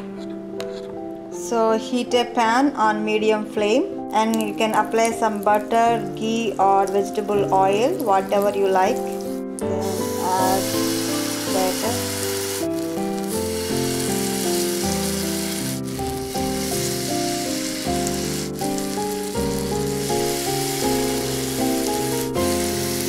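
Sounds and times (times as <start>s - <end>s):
instrumental background music: 0.0s - 23.0s
batter sizzling on a griddle: 7.9s - 23.0s.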